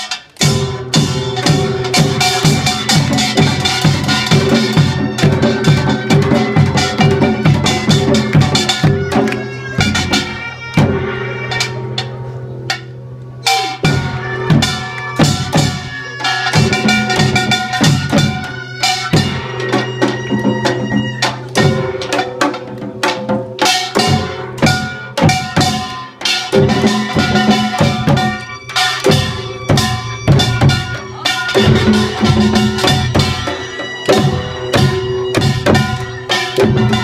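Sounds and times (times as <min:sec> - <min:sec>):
drums struck in dense rhythm: 0:00.0 - 0:37.0
small gong clanging: 0:00.0 - 0:37.0.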